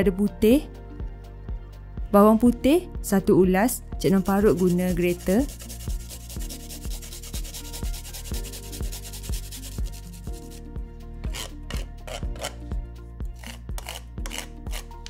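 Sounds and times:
garlic scraping on a grater: 4.1 - 10.6, 11.3 - 12.6, 13.4 - 15.0
wooden spoon scraping grater: 4.1 - 10.6, 11.3 - 12.6, 13.4 - 15.0.

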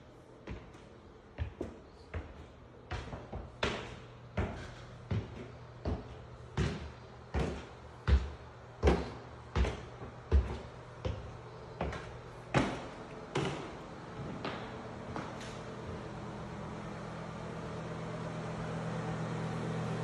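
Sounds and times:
footsteps on hardwood stairs: 0.4 - 16.0.

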